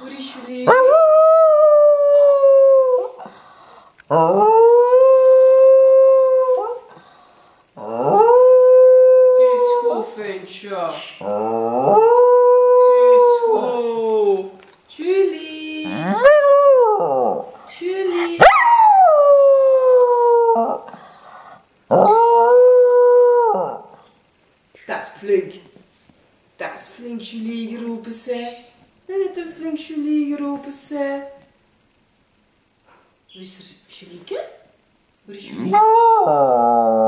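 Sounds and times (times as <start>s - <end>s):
dog howling: 4.1s - 6.8s, 7.8s - 9.9s, 11.2s - 13.9s, 15.8s - 17.5s, 18.1s - 20.8s, 21.9s - 24.0s, 35.6s - 37.0s.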